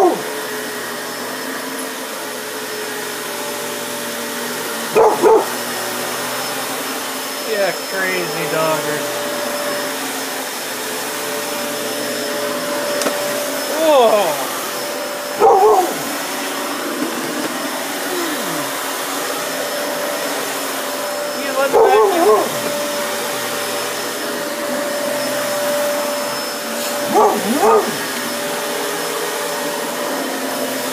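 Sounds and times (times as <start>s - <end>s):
vacuum cleaner on carpet: 0.0s - 30.9s
dog barking: 4.9s - 5.6s, 15.4s - 16.1s, 21.7s - 22.7s, 26.9s - 28.1s.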